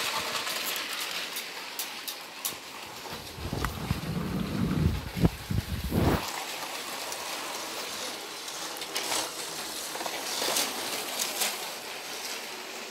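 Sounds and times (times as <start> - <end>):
toy train clicks: 0.0 - 3.4, 6.2 - 12.9
toy train rattling hiss: 0.0 - 12.9.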